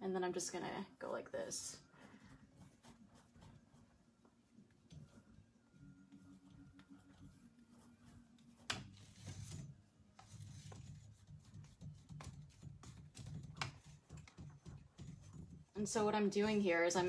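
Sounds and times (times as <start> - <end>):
paintbrush strokes on canvas: 1.7 - 13.2.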